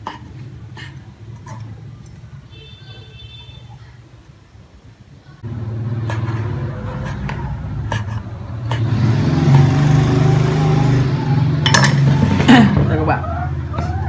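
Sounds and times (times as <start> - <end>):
loud low drone: 5.4 - 12.7.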